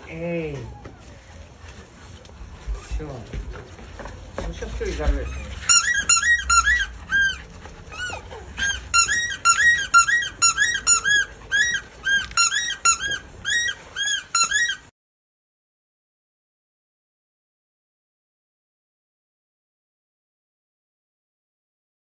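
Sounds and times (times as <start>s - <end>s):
high rising and falling squeaks: 5.2s - 14.9s.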